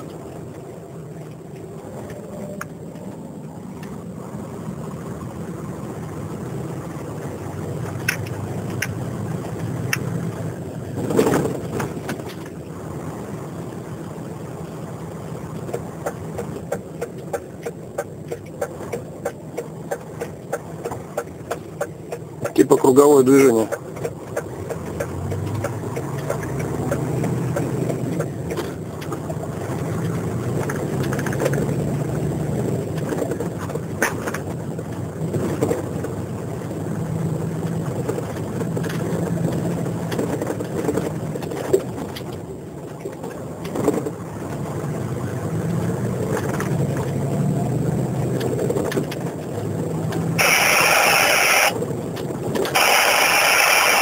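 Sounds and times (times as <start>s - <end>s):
tyre and road noise: 0.0s - 54.0s
vehicle engine hum: 0.0s - 54.0s
rushing hiss: 50.4s - 51.8s, 52.8s - 54.0s.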